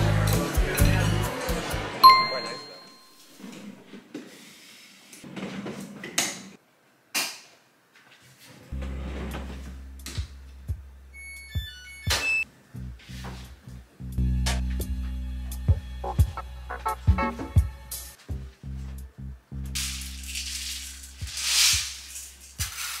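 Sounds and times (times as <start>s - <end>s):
washing machine electronic beeps: 2.0s - 3.2s, 11.1s - 12.5s
soft background music: 8.8s - 21.7s.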